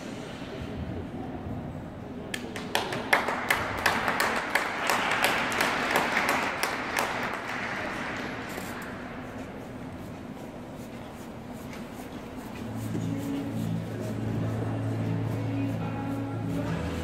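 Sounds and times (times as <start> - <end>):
audience applause: 2.4 - 8.7.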